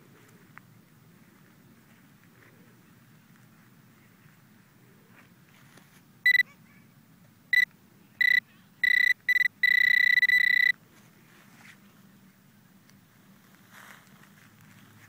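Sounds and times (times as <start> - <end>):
metal detector beeping: 6.3 - 6.5, 7.5 - 10.8.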